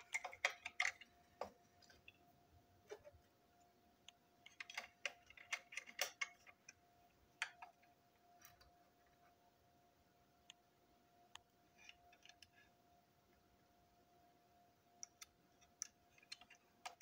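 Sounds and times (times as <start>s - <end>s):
small plastic parts clicking: 0.0s - 2.3s, 4.0s - 8.8s, 11.3s - 12.7s, 14.9s - 17.0s
faint steady hum: 0.0s - 17.0s.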